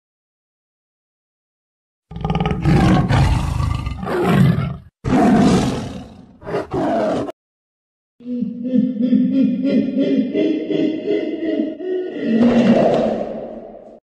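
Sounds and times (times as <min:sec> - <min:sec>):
big cat roaring: 0:02.1 - 0:07.3.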